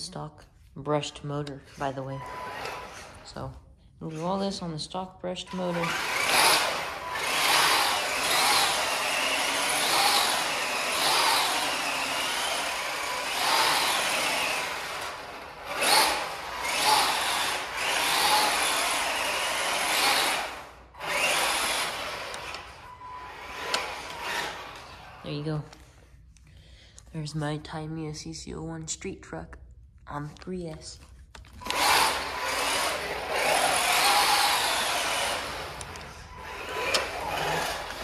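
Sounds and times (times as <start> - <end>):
electric motor whining: 2.2 - 3.2, 5.5 - 25.2, 31.6 - 38.0
tyres scrubbing on tile floor: 31.7 - 38.0.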